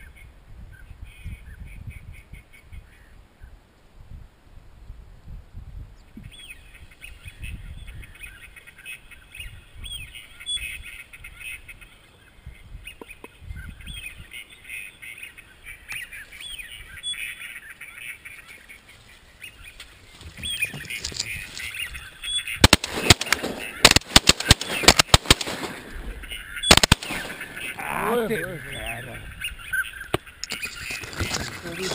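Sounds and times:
ducks calling: 6.9s - 31.9s
rapid shotgun shots: 22.6s - 27.8s.

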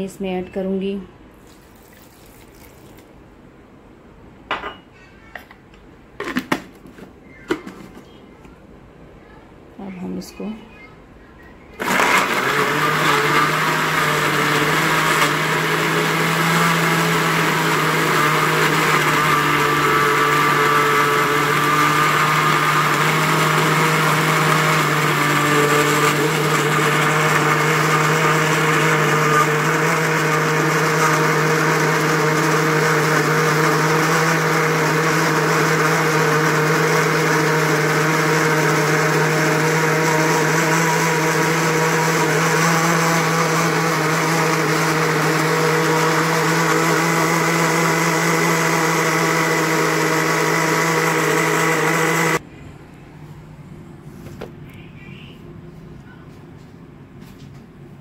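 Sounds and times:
blender running: 11.8s - 52.4s.

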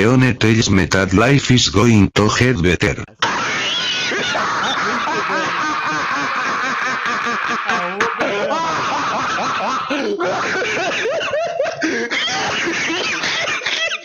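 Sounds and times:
man laughing hard: 3.2s - 14.0s.

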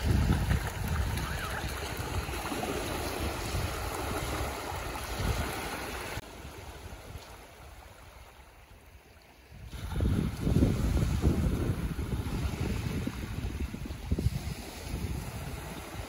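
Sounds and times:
feet splashing in shallow water: 0.0s - 11.2s
small waves washing on shore: 0.0s - 16.0s.

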